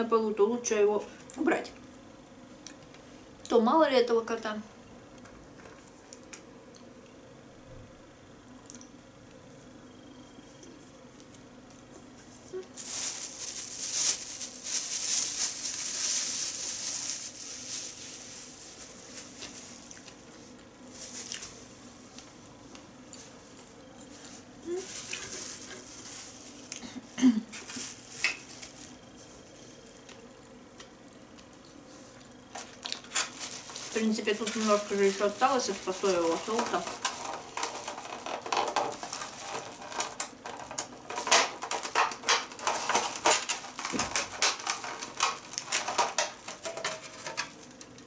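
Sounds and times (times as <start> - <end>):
plastic bag crinkling: 12.5 - 30.2, 31.4 - 48.0
dishes and chopsticks clattering: 44.4 - 47.5.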